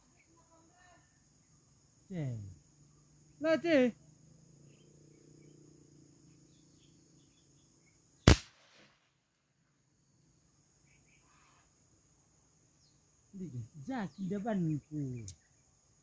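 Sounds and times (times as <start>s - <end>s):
crickets chirring: 0.0s - 16.0s
sharp crack: 8.3s - 9.1s.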